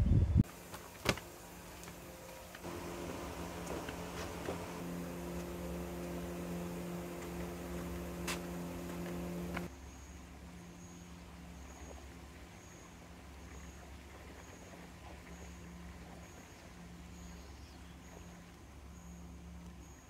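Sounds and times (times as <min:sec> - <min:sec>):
fans humming: 0:00.4 - 0:09.7.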